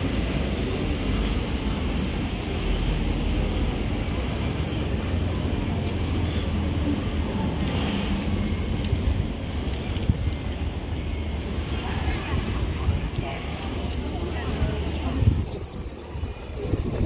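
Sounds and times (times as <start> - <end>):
faint murmur of passers-by: 0.0 - 17.0
low city rumble: 0.0 - 17.0
wind buffeting microphone: 6.7 - 17.0.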